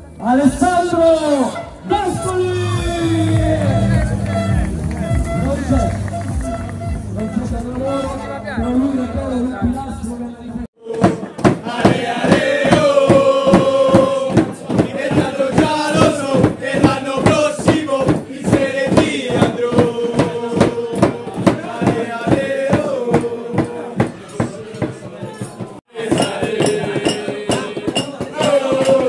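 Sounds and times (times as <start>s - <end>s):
young men chanting in unison: 10.8s - 29.0s
steady beat of sharp hits: 10.9s - 29.0s.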